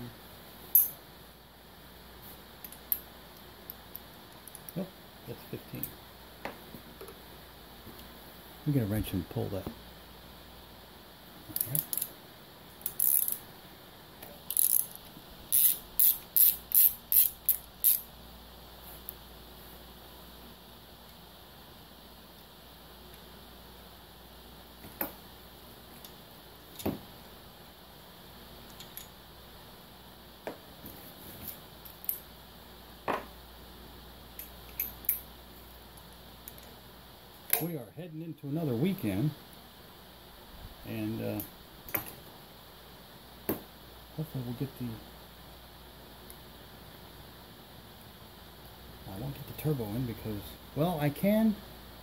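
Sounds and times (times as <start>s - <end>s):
socket ratchet clicking: 12.8s - 13.4s, 14.5s - 18.1s.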